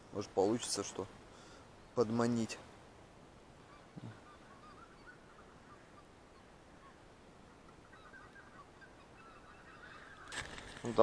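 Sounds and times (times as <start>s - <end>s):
distant geese honking: 3.6s - 11.0s.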